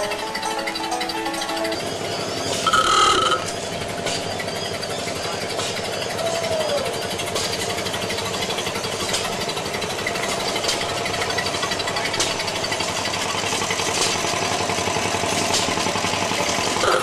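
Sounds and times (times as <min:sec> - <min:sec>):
truck engine chugging: 0:00.0 - 0:17.0.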